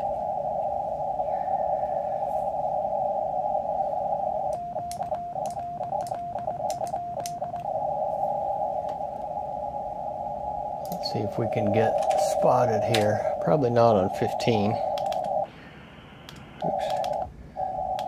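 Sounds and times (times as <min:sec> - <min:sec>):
radio receiver hiss: 0:00.0 - 0:18.0
morse code beeps: 0:03.6 - 0:18.0.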